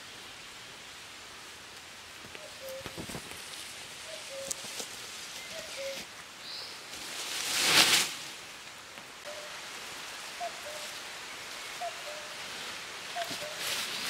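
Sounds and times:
steady outdoor hiss: 0:00.0 - 0:14.0
leafy branches crashing down: 0:06.9 - 0:08.4.

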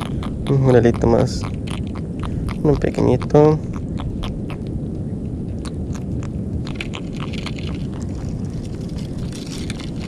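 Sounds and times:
wind rumble on microphone: 0:00.0 - 0:10.0
small clicks and rustles: 0:06.0 - 0:10.0.

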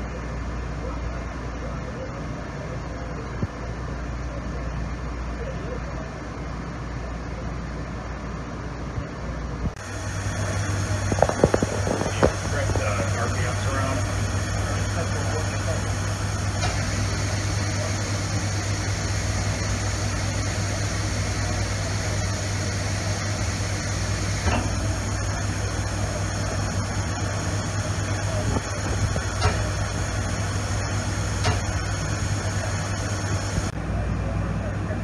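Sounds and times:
grinder machine humming: 0:09.8 - 0:33.8.

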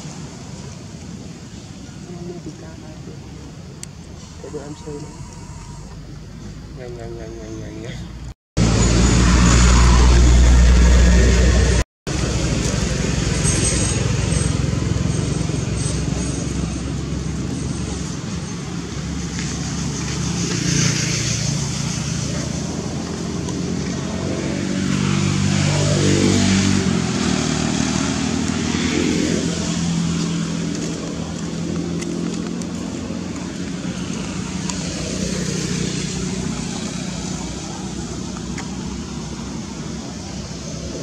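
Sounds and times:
vehicle engine passing: 0:08.6 - 0:41.0.

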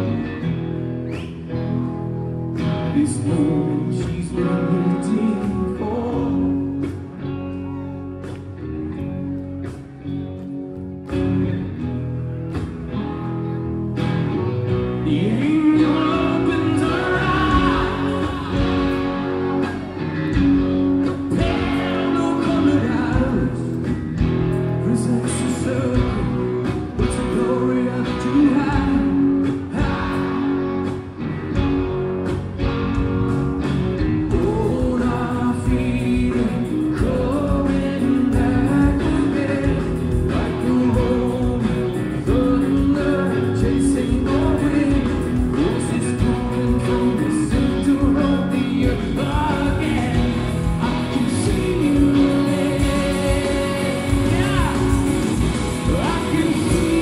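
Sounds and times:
bass guitar: 0:00.0 - 0:57.0
electric guitars: 0:00.0 - 0:57.0
live rock band: 0:00.0 - 0:57.0
person singing: 0:02.7 - 0:08.2, 0:15.0 - 0:23.8, 0:34.3 - 0:57.0
drum kit: 0:14.0 - 0:57.0.

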